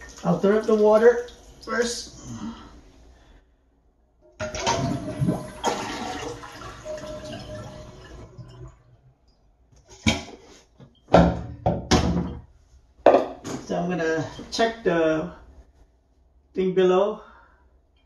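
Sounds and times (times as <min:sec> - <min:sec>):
toilet flushing: 0:00.0 - 0:02.0, 0:04.4 - 0:09.0.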